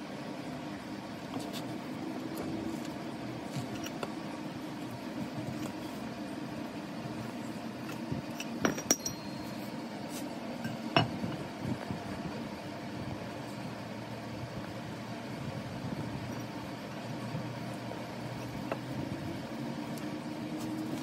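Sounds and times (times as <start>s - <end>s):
steady low hum: 0.0s - 21.0s
metal parts clinking on anvil: 7.8s - 9.6s.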